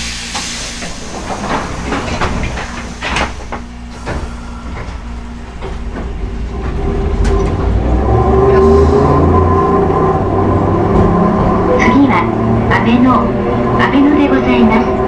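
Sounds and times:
tram wheels clacking over rail joints: 0.0s - 15.0s
traction motor hum: 0.3s - 15.0s.

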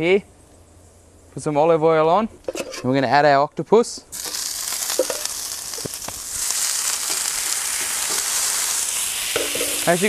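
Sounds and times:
octopus sizzling on hot plate: 4.1s - 10.0s.

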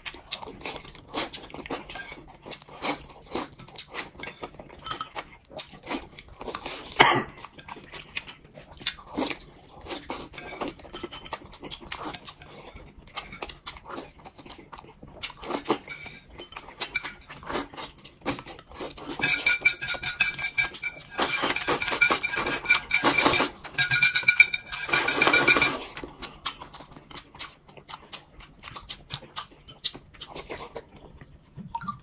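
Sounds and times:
wet chewing and lip-smacking: 0.0s - 19.2s, 25.9s - 32.0s.

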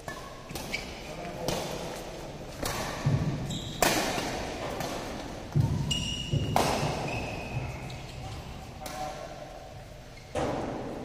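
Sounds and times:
shoes squeaking: 0.0s - 8.6s
racket striking shuttlecock: 2.5s - 7.6s.

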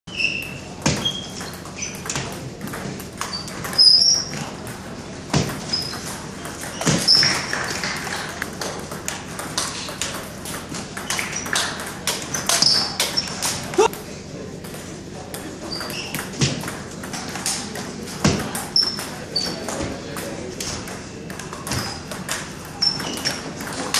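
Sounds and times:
sneakers squeaking on floor: 0.1s - 4.6s, 5.3s - 7.7s, 11.0s - 13.9s, 15.6s - 16.6s, 18.5s - 19.9s, 21.6s - 23.6s.

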